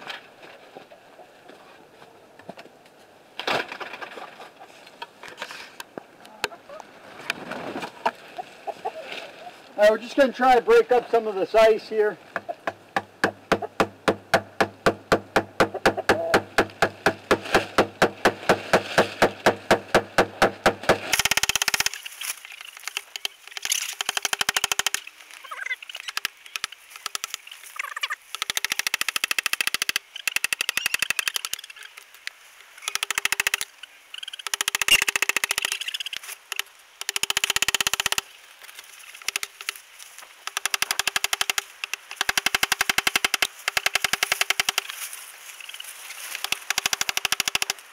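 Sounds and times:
rubber mallet striking scraper: 13.0 - 21.8.

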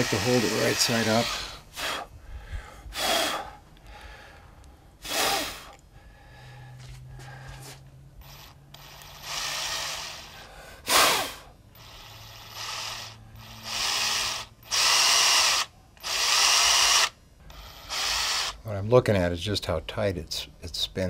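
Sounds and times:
cordless drill whirring: 0.0 - 1.9, 8.2 - 18.6.

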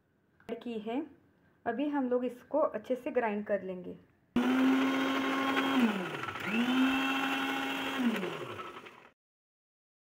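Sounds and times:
mixer-grinder motor whining: 4.4 - 9.2.

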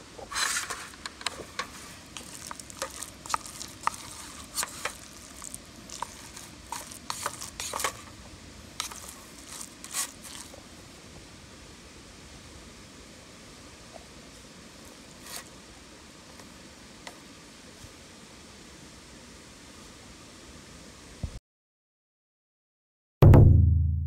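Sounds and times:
spoon scraping metal pot: 0.3 - 8.1, 8.8 - 10.5.

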